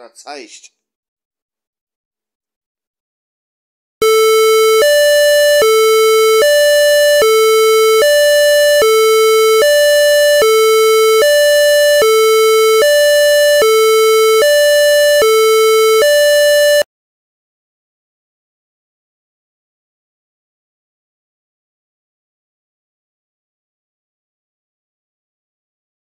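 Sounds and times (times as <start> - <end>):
two-tone electronic siren: 4.0 - 16.9.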